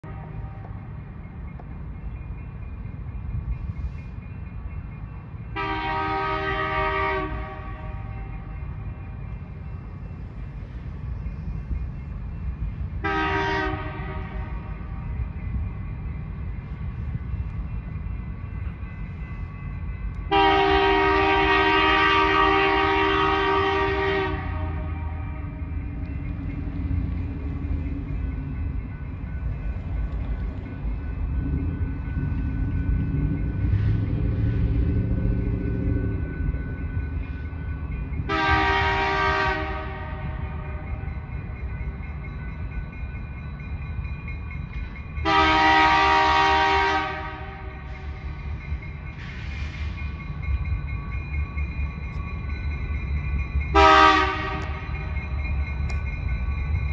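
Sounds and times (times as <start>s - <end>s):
train rumbling: 0.0s - 56.9s
locomotive air horn: 5.6s - 8.3s, 13.0s - 14.8s, 20.3s - 25.8s, 38.3s - 40.9s, 45.2s - 47.9s, 53.7s - 54.9s.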